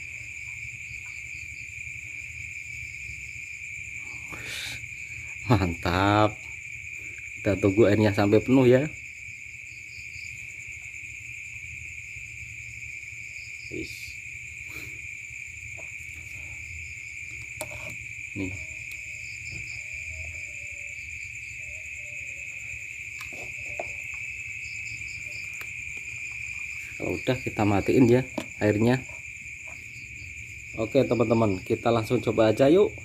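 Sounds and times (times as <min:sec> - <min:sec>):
insects trilling: 0:00.0 - 0:33.0.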